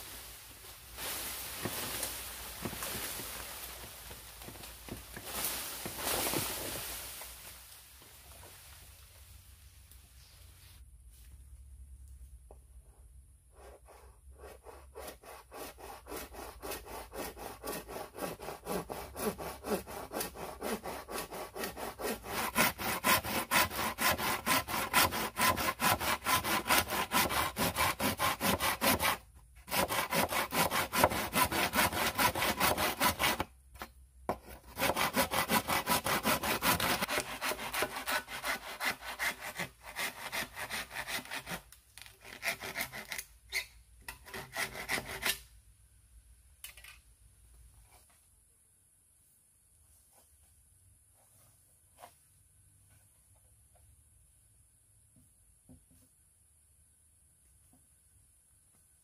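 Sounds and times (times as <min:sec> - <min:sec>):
machete sawing bamboo: 0:13.6 - 0:45.5.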